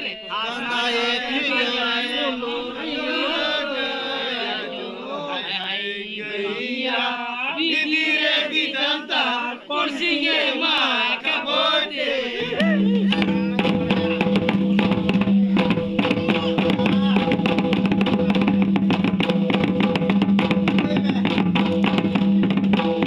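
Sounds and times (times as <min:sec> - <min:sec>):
men singing together: 0:00.0 - 0:18.7
rapid barrel drumming: 0:12.6 - 0:23.0.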